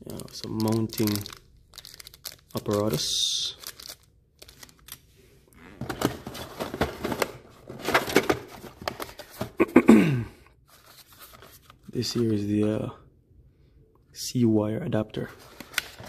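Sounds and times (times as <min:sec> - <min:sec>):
plastic bag crinkling: 0:00.0 - 0:04.9
cardboard packaging rustling: 0:00.0 - 0:05.0, 0:05.8 - 0:09.6, 0:15.4 - 0:16.0.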